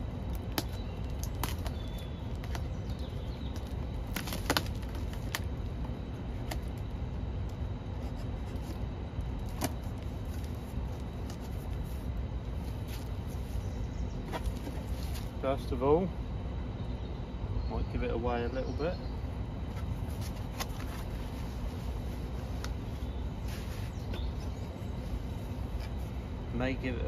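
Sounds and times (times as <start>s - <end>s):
low steady rumble: 0.0s - 27.0s
cardboard box being handled: 14.2s - 15.3s.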